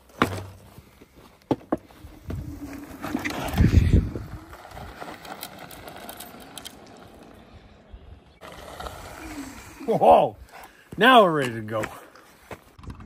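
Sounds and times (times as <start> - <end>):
scooter rolling hum: 0.2 - 10.7.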